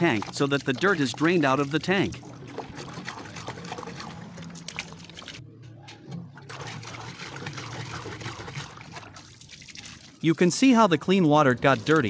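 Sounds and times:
liquid splashing on concrete: 0.0s - 5.4s, 6.5s - 10.2s.

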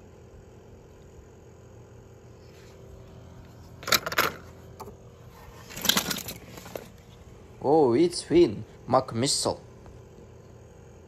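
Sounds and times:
faint steady hum: 0.0s - 11.0s
toy cars clattering: 3.8s - 4.4s, 5.6s - 6.9s.

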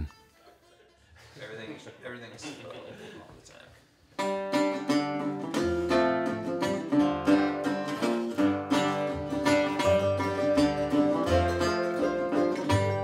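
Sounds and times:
plucked string instrument: 4.2s - 13.0s
strummed acoustic guitar: 4.2s - 13.0s.

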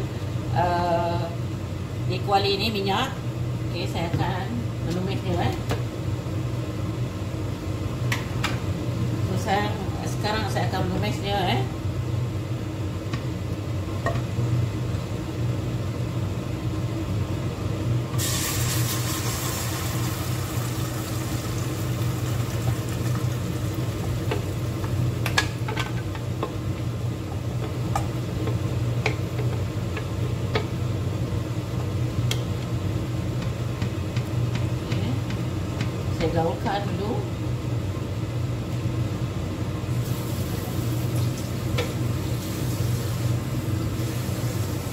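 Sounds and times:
spice paste sizzling in hot oil: 18.2s - 25.2s, 39.9s - 44.9s.

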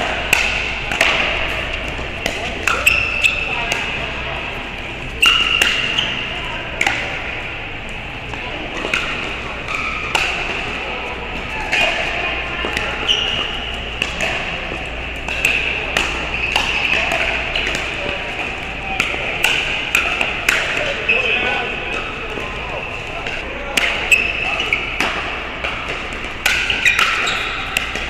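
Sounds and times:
shoe squeaks: 2.7s - 3.7s, 5.2s - 6.4s, 13.0s - 13.6s, 24.0s - 25.0s, 26.7s - 27.8s.

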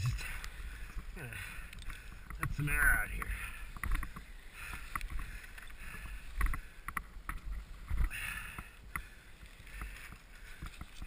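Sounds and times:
bike handling clicks and bumps: 1.6s - 11.0s.

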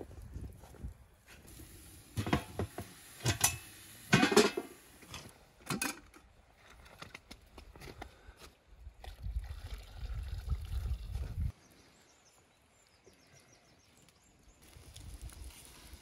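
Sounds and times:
cookware knocks and clanks: 2.2s - 4.7s.

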